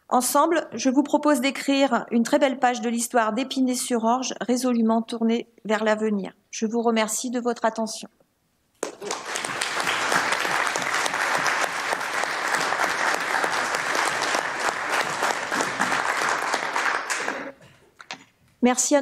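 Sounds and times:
crowd applauding: 0:08.8 - 0:17.6.

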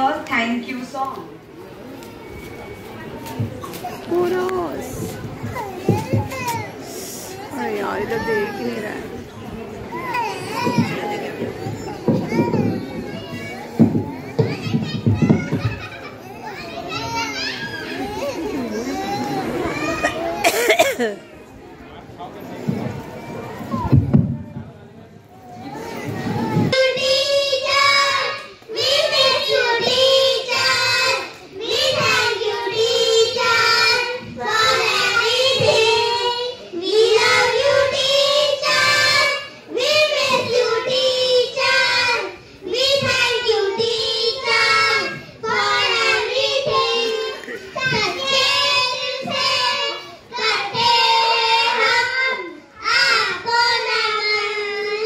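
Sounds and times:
children singing: 0:26.2 - 0:55.0.

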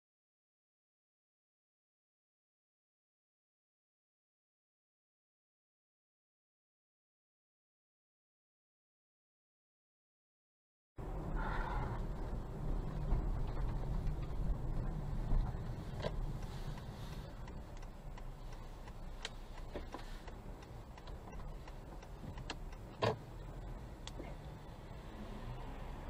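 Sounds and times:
car rumble from inside cabin: 0:11.0 - 0:26.0.

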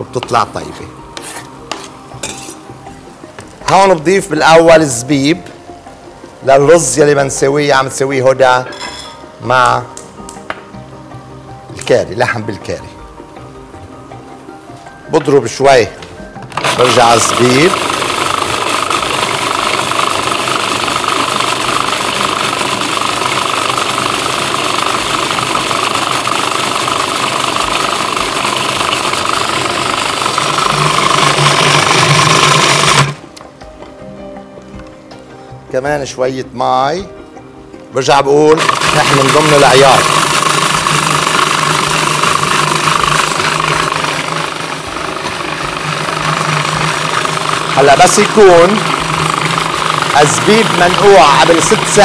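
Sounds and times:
food processor motor running: 0:16.5 - 0:33.2, 0:38.5 - 0:52.0.

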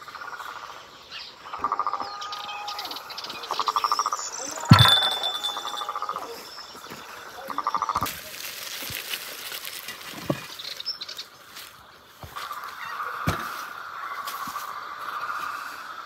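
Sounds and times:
frogs croaking: 0:00.0 - 0:08.3, 0:10.9 - 0:16.0
ceramic dish set down: 0:04.7 - 0:06.0.

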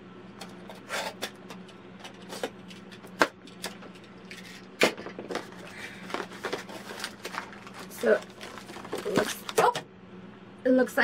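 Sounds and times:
cardboard box being handled: 0:05.3 - 0:09.6.

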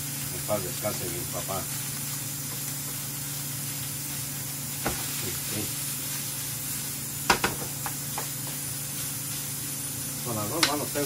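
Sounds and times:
meat sizzling in a frying pan: 0:00.0 - 0:11.0
sharp knocks: 0:07.3 - 0:07.7.

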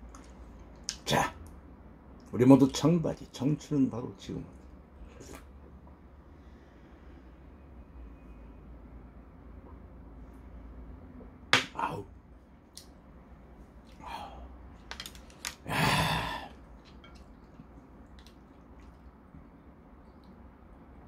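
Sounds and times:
breathy exhale: 0:15.7 - 0:16.6.

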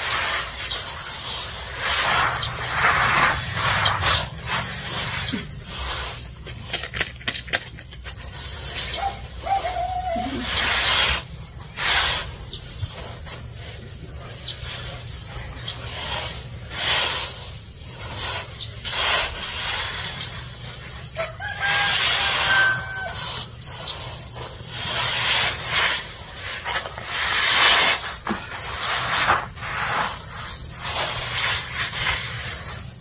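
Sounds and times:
rustling swishes of grain: 0:00.0 - 0:06.8, 0:07.9 - 0:33.0
rooster crowing: 0:09.0 - 0:10.5, 0:21.2 - 0:23.5.

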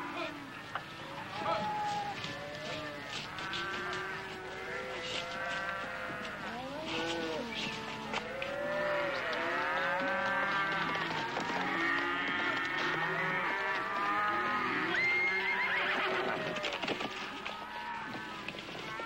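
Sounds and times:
cattle mooing: 0:02.3 - 0:16.4.

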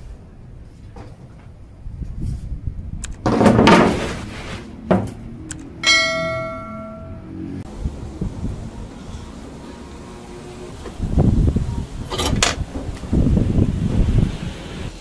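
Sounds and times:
steel bar clanking with metallic ring: 0:05.8 - 0:07.3.

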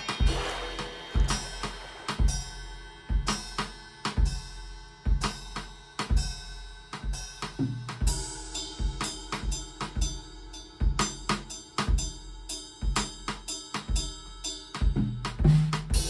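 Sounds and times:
cymbal crash: 0:00.0 - 0:06.3, 0:07.2 - 0:12.4
drum kit beat: 0:00.0 - 0:16.0.

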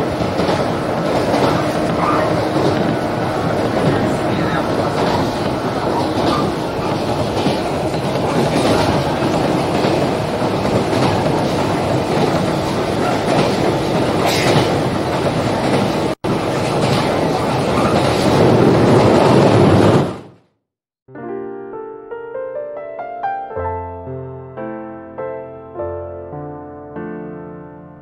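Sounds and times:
clickety-clack of rail joints: 0:00.0 - 0:20.3
train wheels rumbling on rails: 0:00.0 - 0:20.4.

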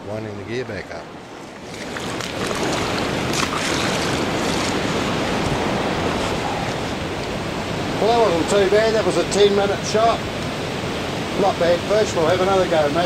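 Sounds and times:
ocean surf breaking: 0:00.0 - 0:13.0.

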